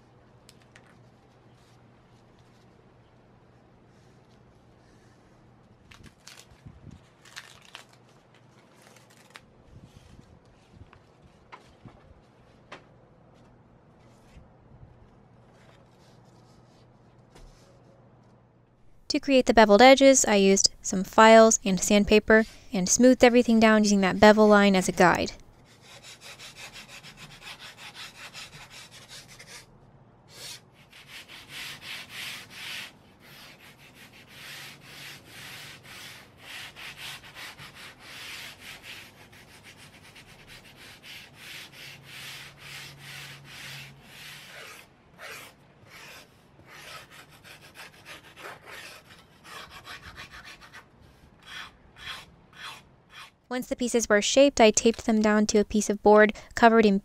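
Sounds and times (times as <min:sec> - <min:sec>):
file rasping on foam: 0:25.7 - 0:29.7, 0:30.3 - 0:53.4.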